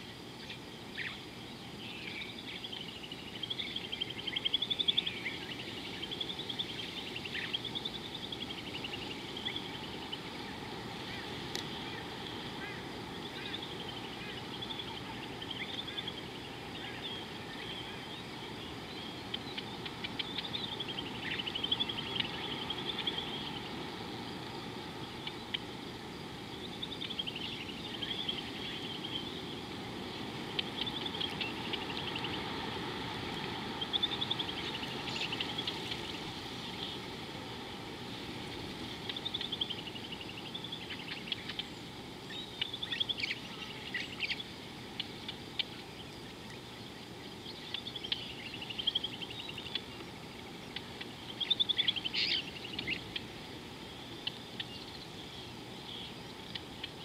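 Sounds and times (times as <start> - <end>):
birds calling: 0.0 - 57.0
low outdoor background noise: 0.0 - 57.0.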